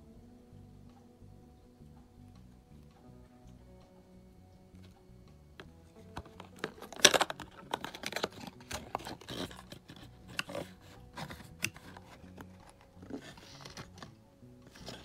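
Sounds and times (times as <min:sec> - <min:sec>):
stiff plastic packaging crinkling: 0:06.0 - 0:10.8.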